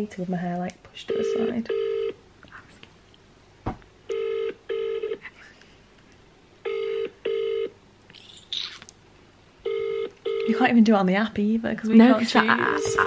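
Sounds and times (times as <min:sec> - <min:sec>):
telephone ringing tone: 0:01.1 - 0:02.2, 0:04.1 - 0:05.2, 0:06.6 - 0:07.8, 0:09.6 - 0:10.7
short knock: 0:03.6 - 0:03.8.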